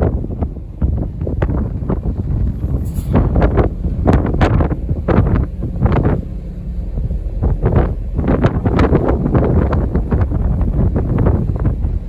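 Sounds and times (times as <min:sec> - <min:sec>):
ship rumbling: 0:00.0 - 0:12.0
wind buffeting microphone: 0:00.0 - 0:12.0.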